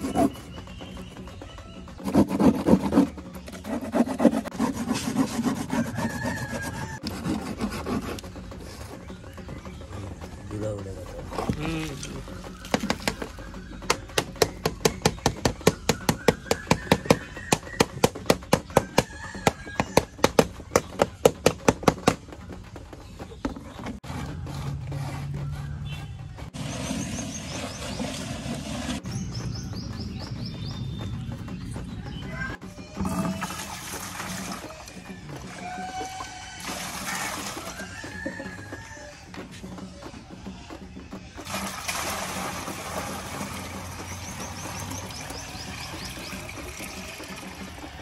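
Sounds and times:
rapid rasping strokes: 0:00.0 - 0:22.1
rapid knocks on frame drum: 0:12.6 - 0:22.5.

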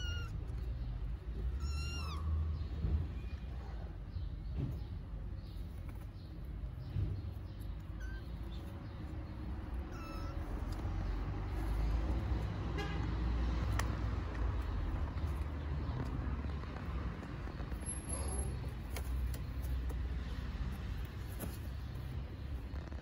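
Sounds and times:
kittens meowing: 0:00.0 - 0:02.8, 0:07.8 - 0:08.8, 0:09.4 - 0:11.2
street traffic rumble: 0:00.0 - 0:23.0.

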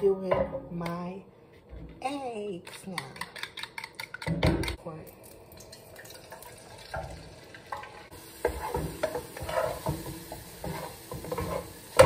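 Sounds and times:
eggs sizzling in hot oil: 0:05.2 - 0:12.0
utensil scraping a pot: 0:08.4 - 0:12.0.

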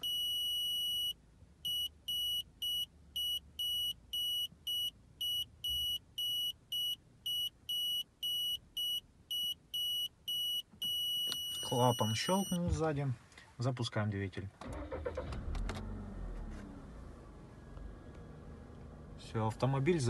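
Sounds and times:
rapid high buzzer beeps: 0:01.7 - 0:12.6.

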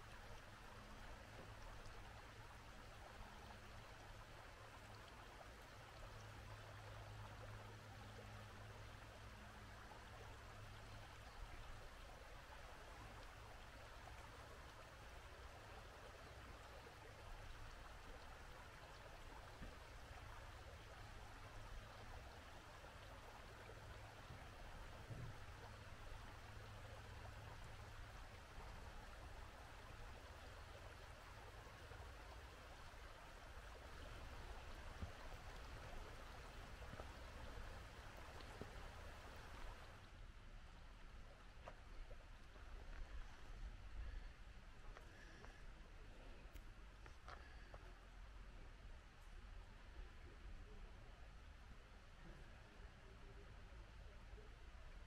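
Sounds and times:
stream water rushing: 0:00.0 - 0:40.1.

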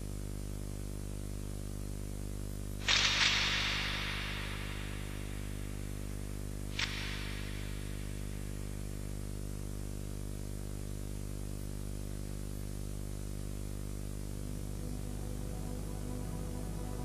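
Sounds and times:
electrical mains hum: 0:02.0 - 0:17.0
faint hiss: 0:02.7 - 0:10.0, 0:11.6 - 0:17.0.

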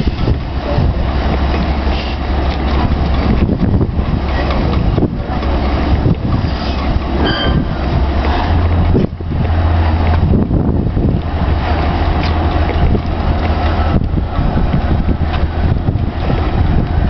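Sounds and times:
boat engine running: 0:00.0 - 0:17.0
wind buffeting microphone: 0:00.0 - 0:17.0
short high squeak: 0:06.5 - 0:07.8.

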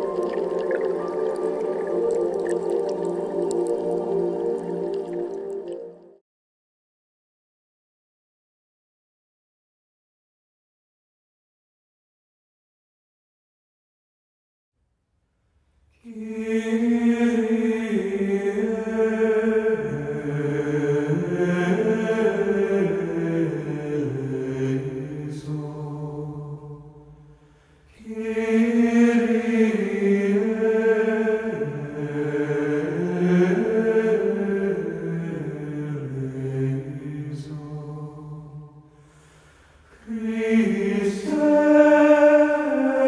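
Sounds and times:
chanted vocal music: 0:00.0 - 0:06.2, 0:16.0 - 0:43.0.

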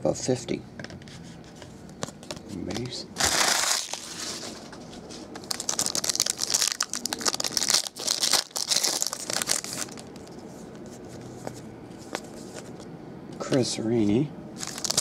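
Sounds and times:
foil pack tearing and crinkling: 0:03.2 - 0:04.6, 0:05.4 - 0:10.3, 0:14.6 - 0:15.0.

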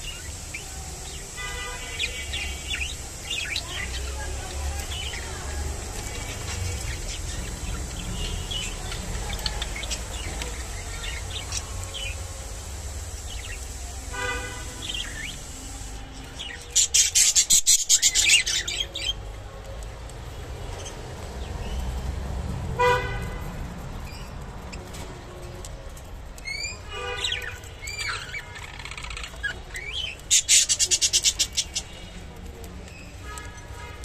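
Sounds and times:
loud crackling rustle: 0:00.0 - 0:34.0
budgerigars chirping: 0:13.1 - 0:15.5.

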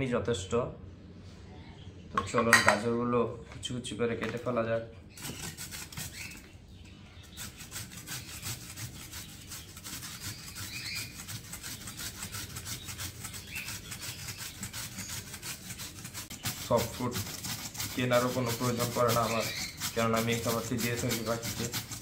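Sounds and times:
carrot grated on metal grater: 0:07.3 - 0:22.0.

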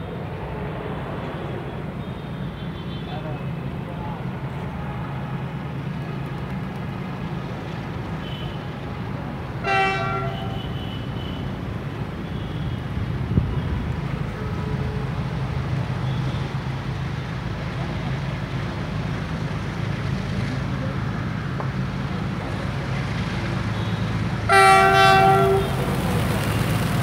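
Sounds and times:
locomotive horn: 0:09.6 - 0:11.5, 0:23.8 - 0:26.8.

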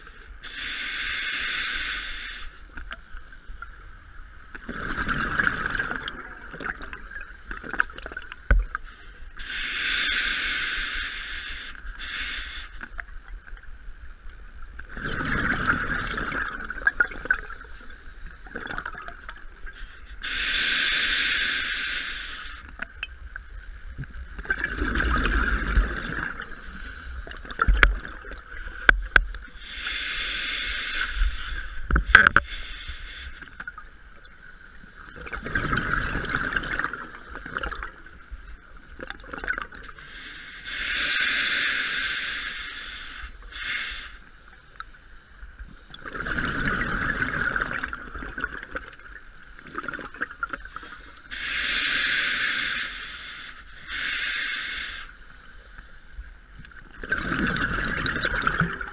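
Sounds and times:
regulator breathing hiss: 0:00.0 - 0:02.8, 0:08.8 - 0:13.0, 0:19.6 - 0:22.8, 0:29.4 - 0:33.7, 0:39.9 - 0:45.2, 0:50.7 - 0:56.1
exhaled bubbles gurgling: 0:04.5 - 0:08.8, 0:14.8 - 0:19.7, 0:24.0 - 0:29.9, 0:35.0 - 0:40.0, 0:45.8 - 0:50.9, 0:56.8 - 0:58.9.

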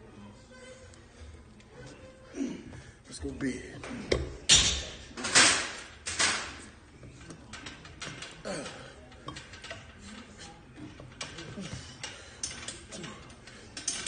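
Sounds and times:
weight stack clanking: 0:03.9 - 0:14.0.

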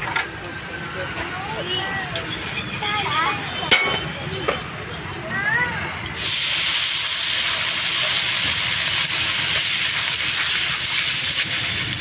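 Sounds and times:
food sizzling on griddle: 0:06.1 - 0:12.0.

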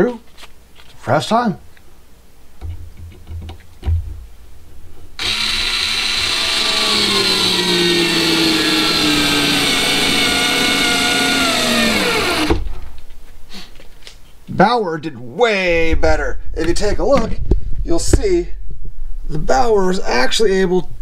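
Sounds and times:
cordless screwdriver motor whining: 0:05.2 - 0:12.6.

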